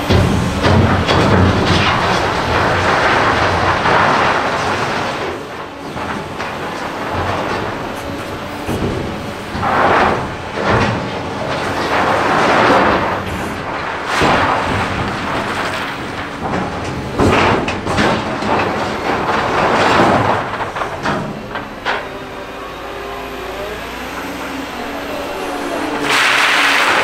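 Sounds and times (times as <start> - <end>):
machine engine running: 0.0 - 27.0
stones rattling against steel: 0.1 - 22.1.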